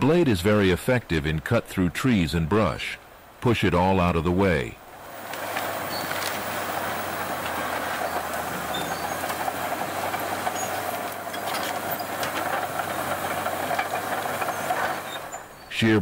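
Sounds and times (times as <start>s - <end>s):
bulldozer running: 4.8s - 16.0s
brush cracking: 5.2s - 15.0s.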